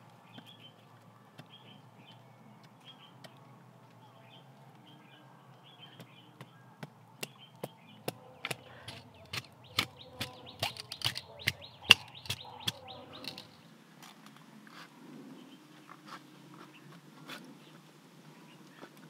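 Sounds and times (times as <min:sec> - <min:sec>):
faint birds chirping: 0:00.0 - 0:19.0
knife striking bamboo: 0:07.2 - 0:13.5.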